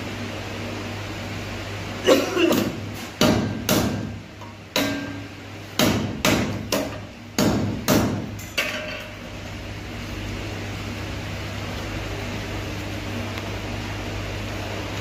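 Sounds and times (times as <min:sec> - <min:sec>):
steady low hum: 0:00.0 - 0:15.0
hammer striking metal fan: 0:02.1 - 0:09.2.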